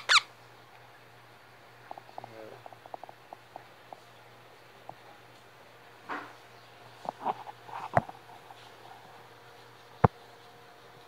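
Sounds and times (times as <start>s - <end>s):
parakeet chirping softly: 0.0s - 5.3s
steady low hum: 0.0s - 11.0s.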